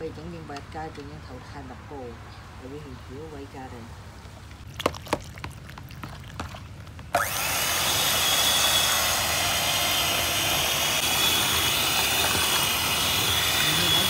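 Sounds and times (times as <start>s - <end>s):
kitchen appliance motor whining: 7.2s - 14.0s.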